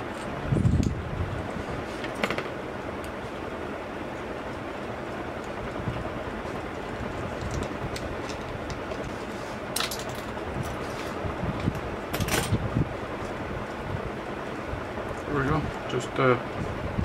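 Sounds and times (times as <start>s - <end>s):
clicks and crinkles of handling: 7.2s - 11.2s.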